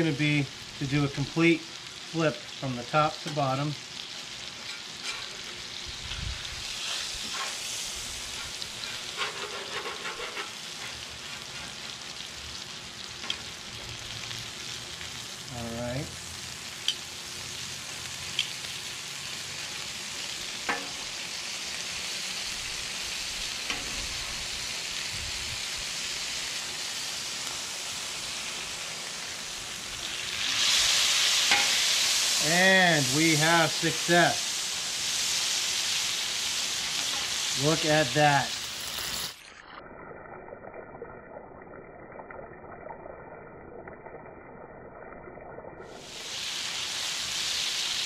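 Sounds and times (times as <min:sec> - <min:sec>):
meat sizzling on griddle: 0:00.0 - 0:40.6, 0:44.9 - 0:48.0
spatula clicking on griddle: 0:08.4 - 0:11.0, 0:20.6 - 0:21.0, 0:31.5 - 0:31.8.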